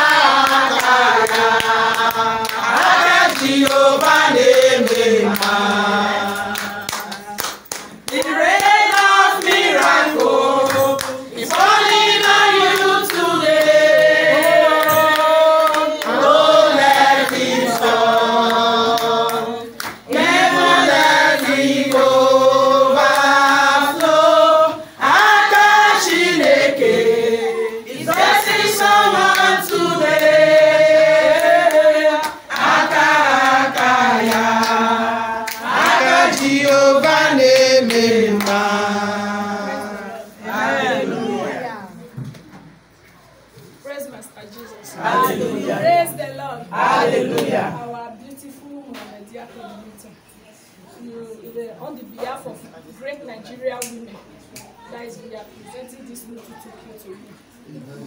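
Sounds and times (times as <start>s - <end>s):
group of voices singing: 0.0s - 42.0s, 44.9s - 46.0s, 46.7s - 47.9s.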